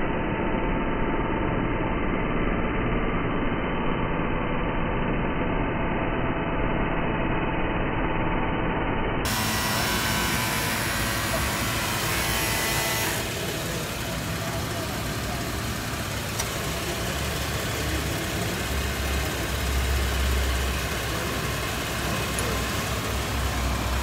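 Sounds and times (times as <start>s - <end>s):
hydraulic pump humming: 9.3s - 24.0s.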